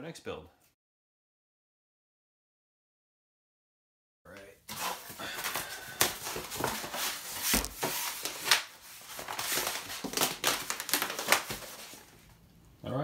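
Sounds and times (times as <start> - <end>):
foam board rustling and scraping: 4.7 - 12.2.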